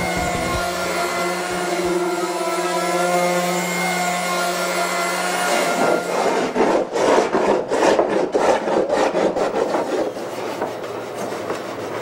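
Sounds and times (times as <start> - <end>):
hand sanding wood: 5.5 - 12.0.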